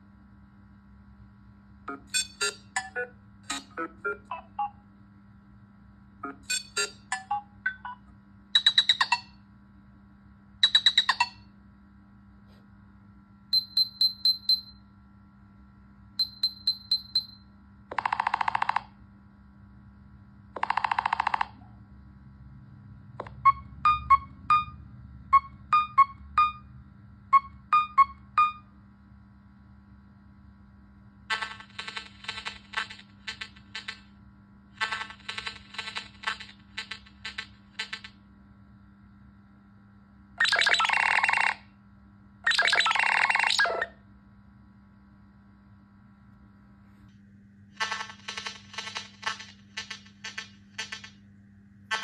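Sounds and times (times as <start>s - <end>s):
electronic ringtone beeps and chirps: 1.9s - 4.8s, 6.2s - 9.4s, 10.6s - 11.4s, 13.6s - 14.8s, 16.2s - 17.4s, 23.2s - 26.7s, 27.4s - 28.7s, 40.4s - 41.7s, 42.5s - 44.0s
quick beeping figure: 1.9s - 4.8s.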